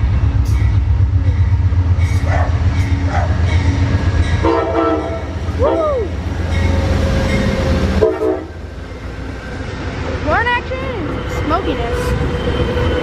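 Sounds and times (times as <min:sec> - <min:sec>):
diesel locomotive rumble: 0:00.0 - 0:13.0
train horn: 0:04.3 - 0:08.6.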